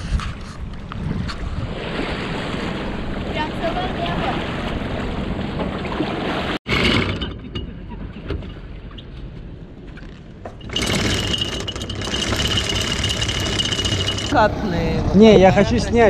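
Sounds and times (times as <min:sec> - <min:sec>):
wind noise on microphone: 0:00.0 - 0:03.0
boat motor whining: 0:10.4 - 0:16.0.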